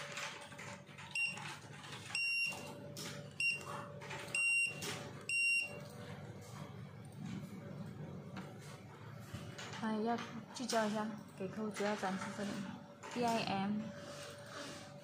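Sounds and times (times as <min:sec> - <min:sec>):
barcode scanner beeping: 0:01.1 - 0:05.9.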